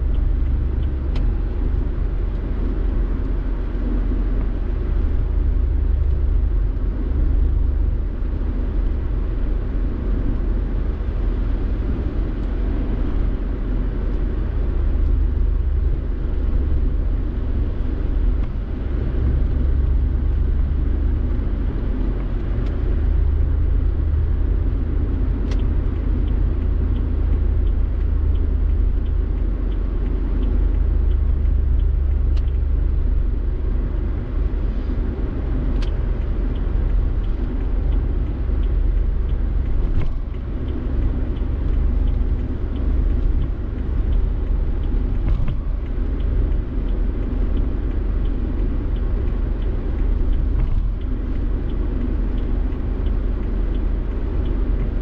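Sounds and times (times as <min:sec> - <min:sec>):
car engine and road noise: 0:00.0 - 0:55.0
faint sharp clicks: 0:35.7 - 0:55.0.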